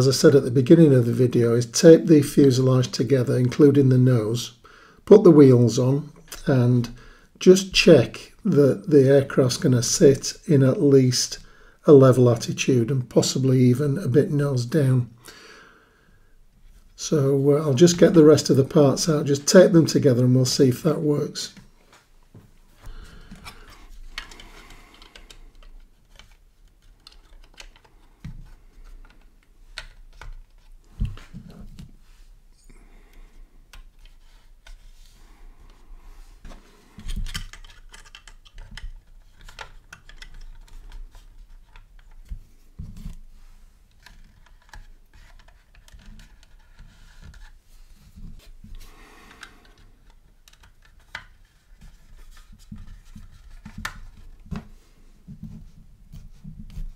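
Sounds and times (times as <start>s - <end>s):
plastic parts clicking and tapping: 22.8s - 32.0s, 36.4s - 43.2s, 43.9s - 47.6s, 48.2s - 54.7s.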